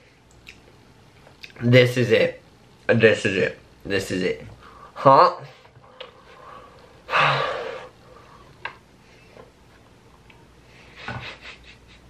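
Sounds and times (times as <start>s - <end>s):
man breathing heavily: 5.8s - 9.4s.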